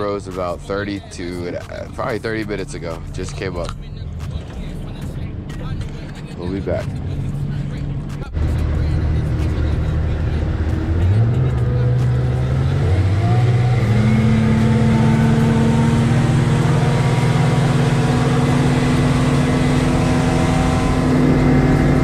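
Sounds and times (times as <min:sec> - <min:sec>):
outboard motor running: 0:13.4 - 0:22.0.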